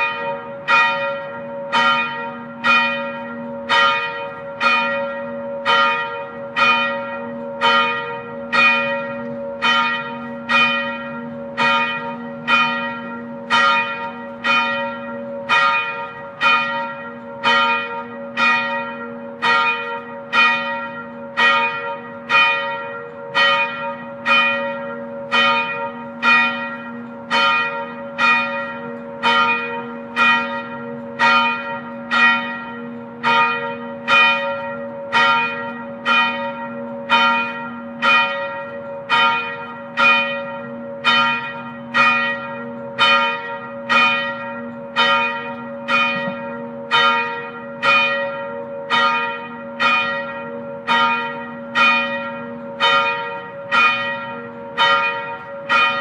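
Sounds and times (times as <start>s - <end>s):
church bell tolling: 0.0s - 56.0s.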